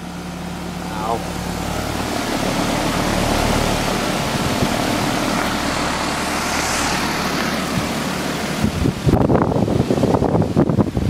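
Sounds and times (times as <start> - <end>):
low unit hum: 0.0 - 10.6
condenser fan air rush: 0.0 - 11.0.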